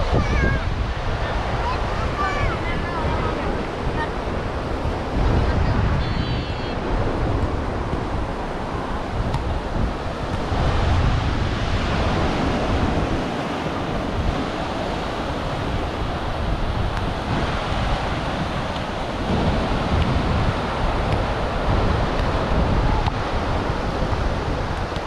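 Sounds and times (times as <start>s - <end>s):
surf washing onto sandy beach: 0.0s - 25.0s
wind buffeting microphone: 0.0s - 25.0s.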